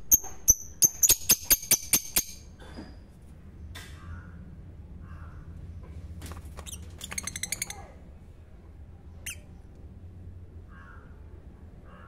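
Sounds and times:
lovebirds chirping: 0:00.0 - 0:02.5, 0:06.6 - 0:08.0, 0:09.1 - 0:09.8.

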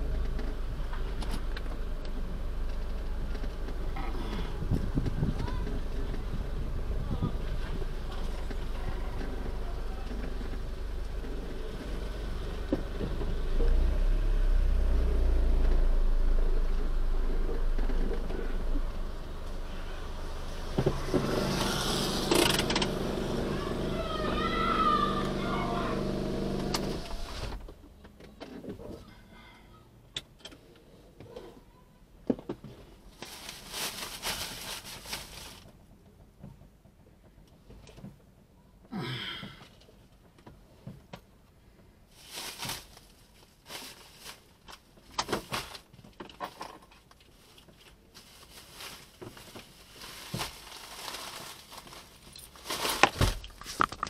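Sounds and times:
rustling and crinkling: 0:31.2 - 0:38.4, 0:39.7 - 0:54.0.

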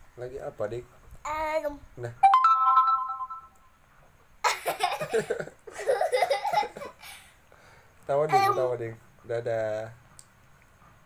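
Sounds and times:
girl giggling: 0:04.4 - 0:07.3.

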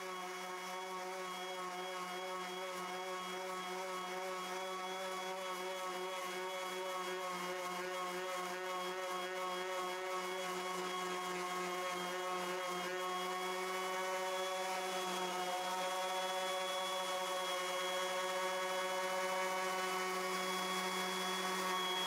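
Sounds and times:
orbital sander running: 0:00.0 - 0:22.0.

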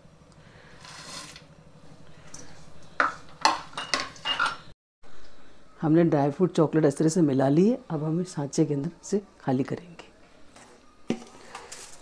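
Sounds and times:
metal spatula scraping bowl: 0:00.8 - 0:01.4
nuts rustling into bowl: 0:11.1 - 0:12.0.

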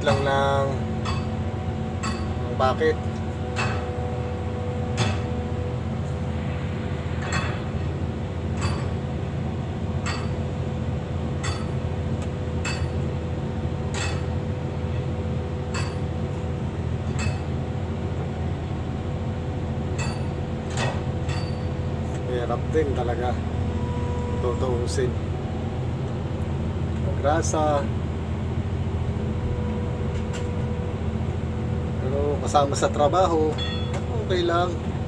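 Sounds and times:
excavator engine idling: 0:00.0 - 0:35.0
steel bar striking metal: 0:08.6 - 0:09.0, 0:10.0 - 0:10.4, 0:12.6 - 0:13.0, 0:15.7 - 0:16.1, 0:20.0 - 0:21.7.

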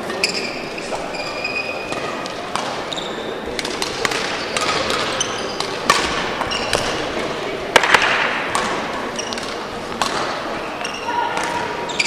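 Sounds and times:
shoe squeaks on court floor: 0:00.1 - 0:02.2, 0:02.8 - 0:03.3, 0:04.3 - 0:05.8, 0:06.4 - 0:07.0, 0:09.1 - 0:09.6
racket striking shuttlecock: 0:01.9 - 0:02.8, 0:03.5 - 0:11.6.

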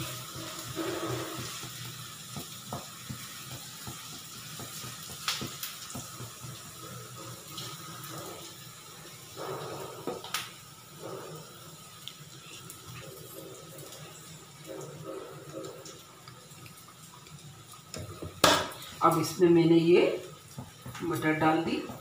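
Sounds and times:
spatula scraping pan: 0:00.0 - 0:02.2
food sizzling in hot oil: 0:00.0 - 0:22.0.

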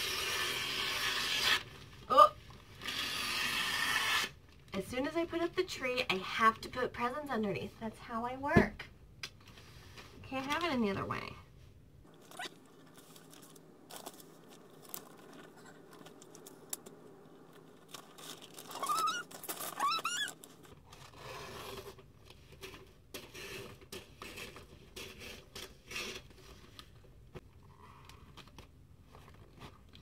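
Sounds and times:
wrapping paper rustling: 0:12.1 - 0:22.8.

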